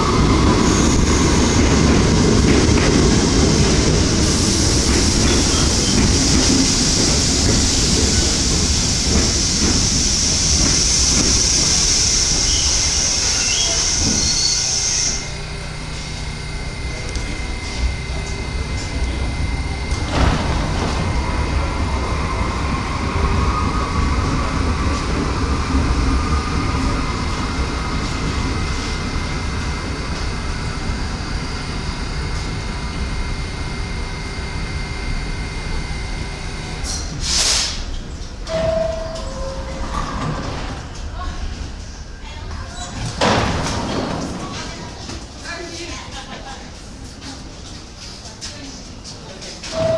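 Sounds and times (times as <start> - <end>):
train rumble and hum: 0.0 - 49.9
wheel and brake squeal: 12.3 - 15.3
air hiss: 37.2 - 37.9
two-note door chime: 38.5 - 39.8.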